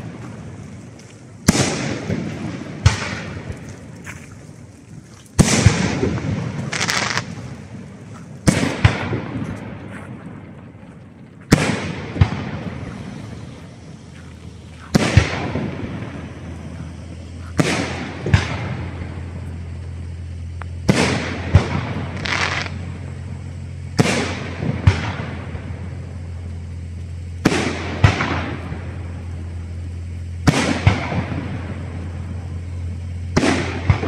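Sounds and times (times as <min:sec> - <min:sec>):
crackling hiss: 0:00.0 - 0:34.0
firework shells bursting: 0:00.0 - 0:34.0.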